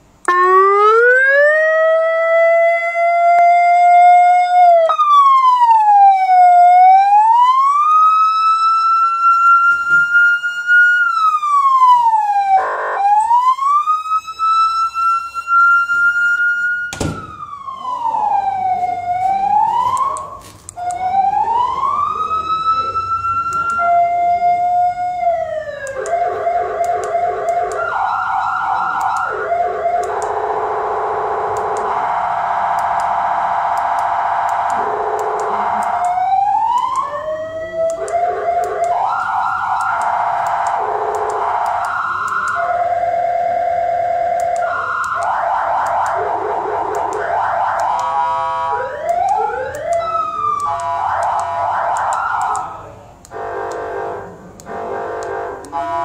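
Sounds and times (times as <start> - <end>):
electronic siren wailing: 0.2 - 52.7
two-tone pulsing siren: 0.2 - 56.0.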